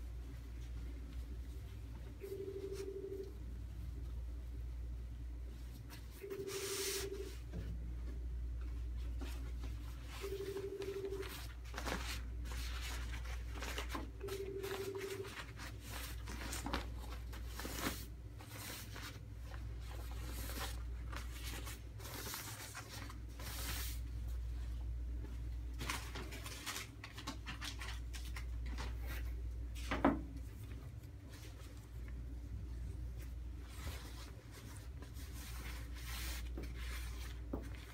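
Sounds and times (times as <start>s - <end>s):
steady low hum: 0.0s - 37.9s
rustling and crinkling of wrap: 10.8s - 37.9s.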